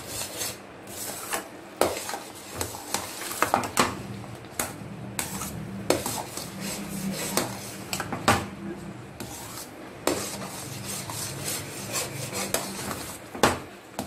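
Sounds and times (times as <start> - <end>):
metal spoon scraping steel pan: 5.2 - 8.1, 9.2 - 13.2.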